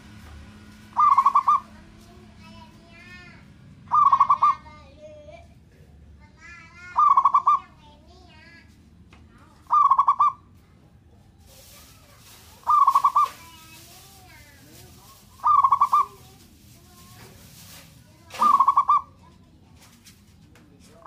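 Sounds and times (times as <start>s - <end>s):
dove stuttering coo: 0.9s - 1.8s, 3.9s - 4.6s, 9.6s - 10.4s, 12.4s - 14.1s, 15.1s - 16.4s, 17.7s - 19.4s
faint bird chirps: 1.0s - 1.7s, 18.3s - 19.2s.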